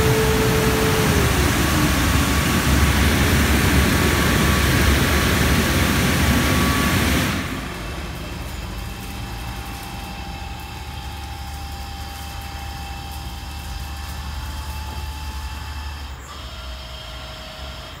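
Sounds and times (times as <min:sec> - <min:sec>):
thin steady whine: 0:00.0 - 0:17.8
low mechanical hum: 0:00.0 - 0:18.0.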